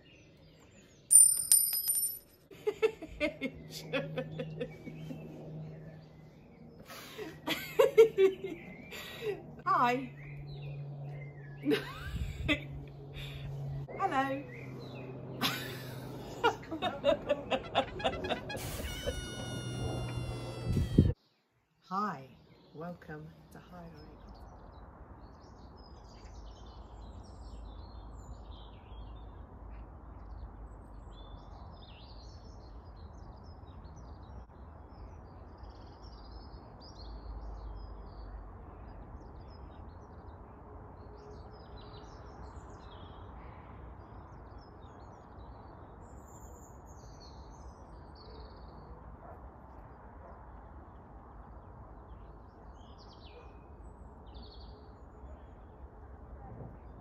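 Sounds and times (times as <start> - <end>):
birds chirping and squawking: 18.0 - 21.2.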